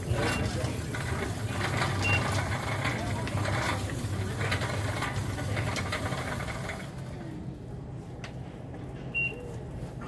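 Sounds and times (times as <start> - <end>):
indistinct voices: 0.0 - 7.3.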